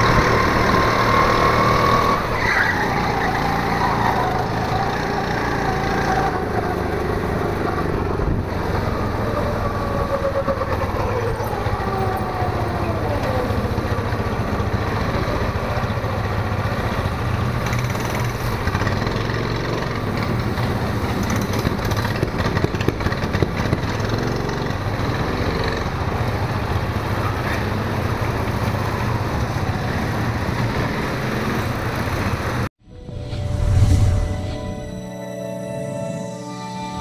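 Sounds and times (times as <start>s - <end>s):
go-kart engine running: 0.0s - 32.7s
music: 32.8s - 37.0s.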